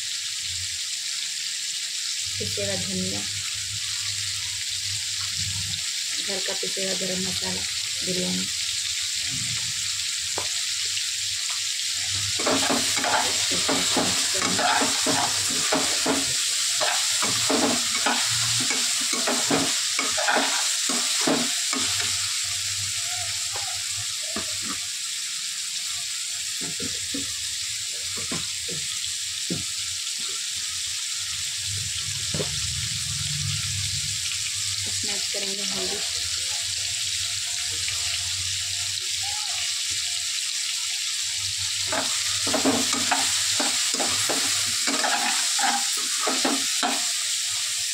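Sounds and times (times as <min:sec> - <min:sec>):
food sizzling in a pan: 0:00.0 - 0:47.9
metal spoon stirring and scraping: 0:12.3 - 0:22.2, 0:41.9 - 0:47.0.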